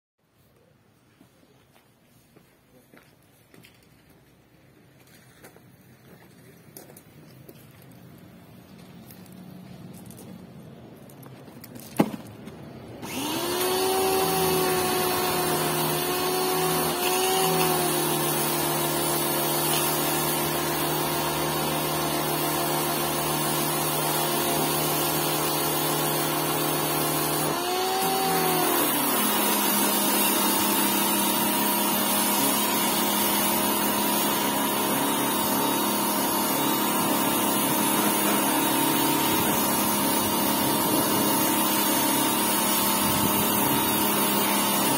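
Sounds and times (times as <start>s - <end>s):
pressure washer motor running: 13.0s - 44.9s.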